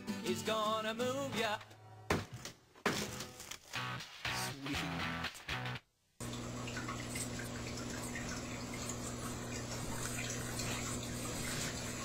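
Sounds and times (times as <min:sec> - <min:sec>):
low electrical hum: 0:06.1 - 0:12.0.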